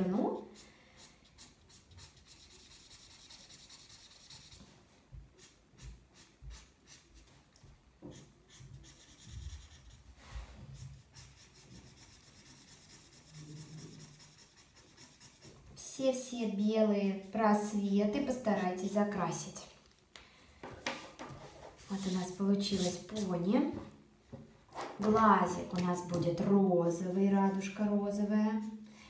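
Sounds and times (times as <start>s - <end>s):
marker scratching on paper: 0.1s - 4.7s, 5.4s - 7.4s, 8.1s - 16.0s, 21.4s - 23.4s.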